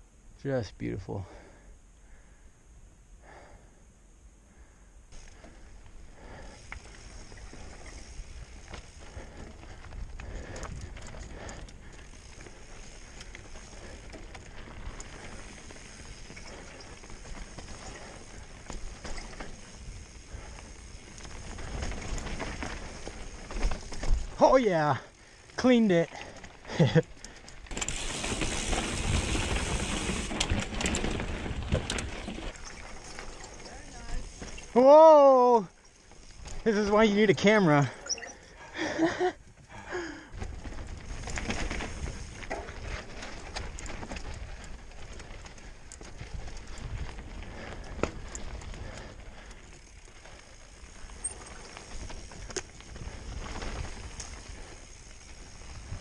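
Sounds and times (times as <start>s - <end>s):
bike tyres on rock: 5.1s - 56.0s
bike rattling: 5.2s - 56.0s
bike rattling and knocking: 26.2s - 34.7s, 40.3s - 56.0s.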